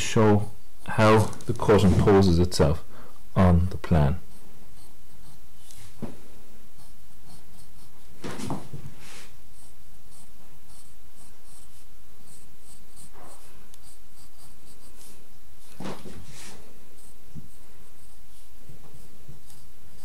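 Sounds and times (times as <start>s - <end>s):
paper rustles: 1.0s - 2.4s
pencil scratching on paper: 4.3s - 5.8s, 6.8s - 8.0s, 9.0s - 20.0s.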